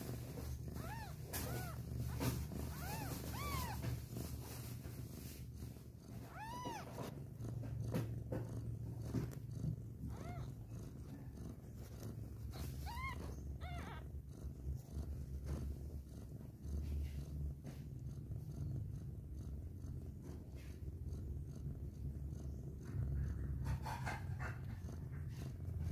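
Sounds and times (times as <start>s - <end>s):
cat purring: 0.0s - 25.9s
kitten mewing: 0.8s - 4.0s, 6.2s - 7.1s, 10.0s - 11.4s, 12.5s - 14.1s.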